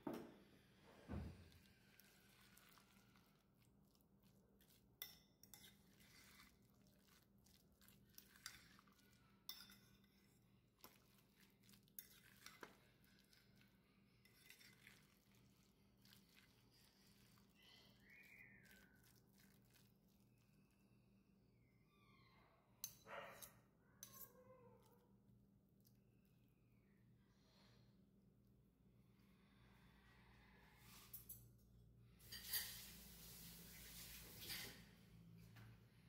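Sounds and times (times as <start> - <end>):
metal utensil scraping bowl: 4.6 - 11.0, 12.0 - 13.6, 14.2 - 16.4, 32.2 - 34.9
metal clinking against bowl: 8.3 - 10.2.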